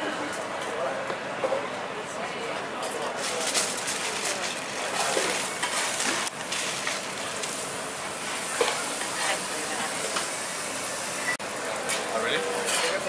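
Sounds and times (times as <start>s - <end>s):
aluminium foil crinkling: 3.2s - 7.7s
meat sizzling in frying pans: 4.6s - 11.3s.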